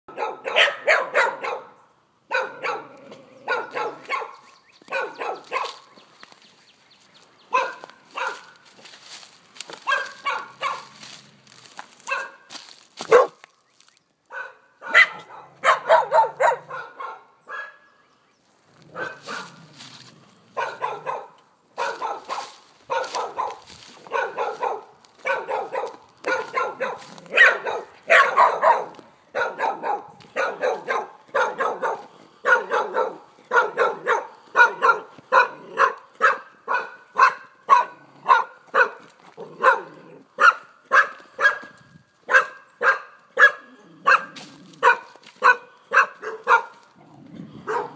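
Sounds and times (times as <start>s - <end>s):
dogs barking: 0.1s - 6.4s, 7.4s - 13.5s, 14.3s - 18.0s, 18.8s - 47.9s.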